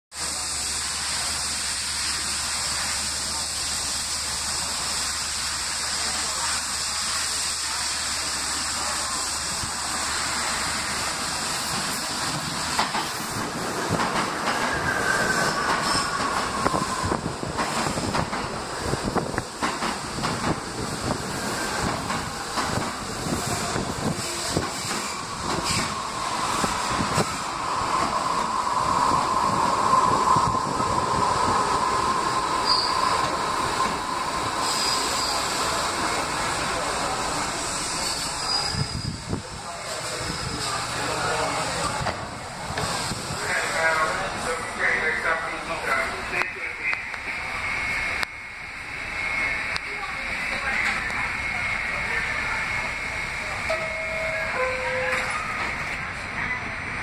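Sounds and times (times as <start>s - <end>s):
train wheels clicking over rail joints: 11.6s - 27.4s
high wheel squeal: 14.4s - 17.3s, 24.3s - 35.8s, 37.8s - 39.4s, 53.4s - 56.0s.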